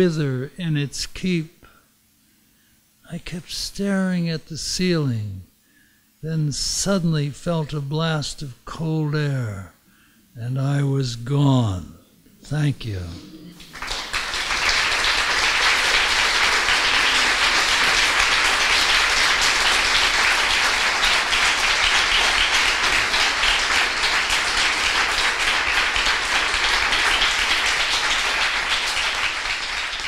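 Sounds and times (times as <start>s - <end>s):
audience applauding: 12.9s - 30.0s.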